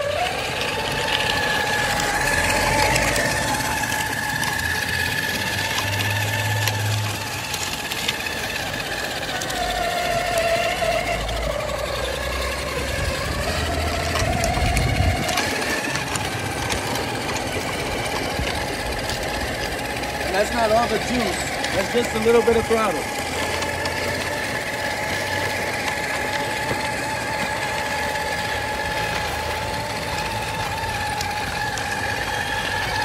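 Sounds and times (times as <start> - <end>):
electric motor whining: 0.0 - 33.0.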